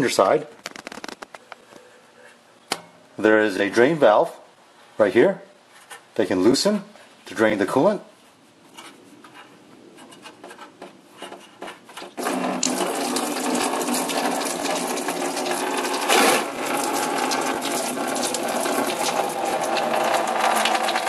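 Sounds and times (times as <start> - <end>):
coolant splashing into pan: 12.2 - 21.0
drain valve clicks: 12.5 - 21.0.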